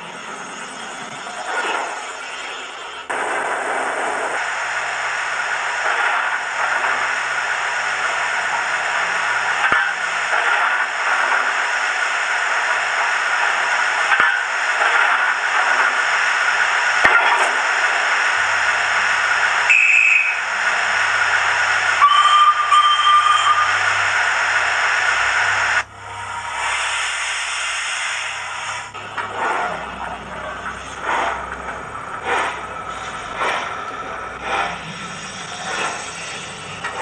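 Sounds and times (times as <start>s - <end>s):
steam hiss: 1.3s - 31.5s, 32.1s - 37.0s
locomotive whistle: 19.6s - 20.5s, 22.0s - 23.9s
short high whistle: 19.7s - 20.4s, 22.0s - 23.7s.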